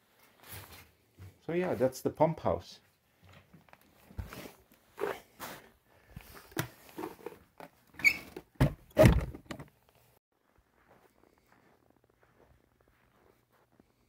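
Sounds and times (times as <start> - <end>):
footsteps: 0.0 - 2.0, 10.4 - 14.0
wooden door scrapes and knocks: 8.0 - 9.6.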